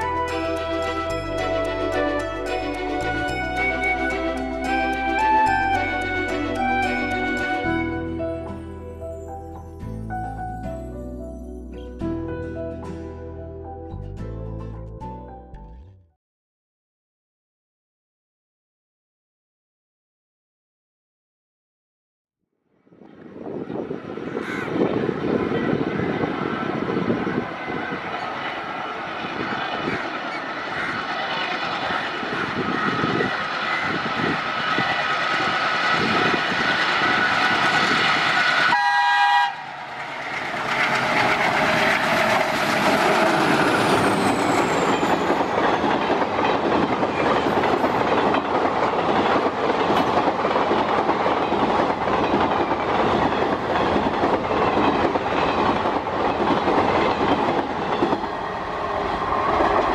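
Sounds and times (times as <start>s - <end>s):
locomotive engine passing: 0.0s - 8.6s, 23.8s - 59.9s
diesel locomotive horn blast: 38.5s - 40.2s
train wheels clicking over rail joints: 39.6s - 59.9s.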